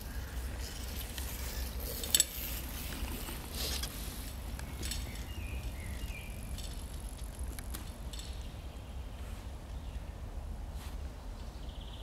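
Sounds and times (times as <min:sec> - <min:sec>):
low wind rumble: 0:00.0 - 0:12.0
forest birds calling: 0:03.0 - 0:06.8, 0:11.4 - 0:12.0.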